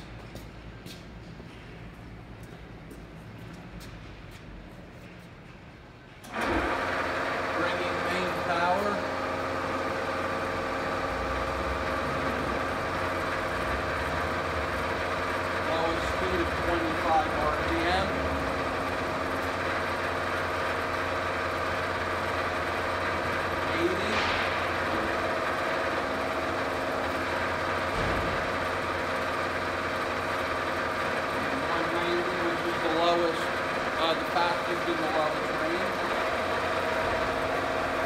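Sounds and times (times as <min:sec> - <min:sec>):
milling machine gear whine: 0:06.3 - 0:38.0.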